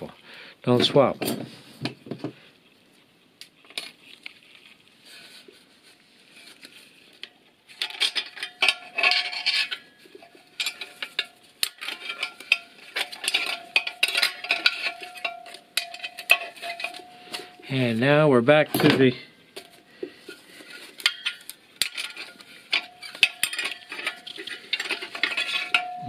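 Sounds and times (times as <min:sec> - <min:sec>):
metal parts clinking and scraping: 0:07.7 - 0:18.0, 0:18.6 - 0:26.0
thin ringing note: 0:25.6 - 0:26.0.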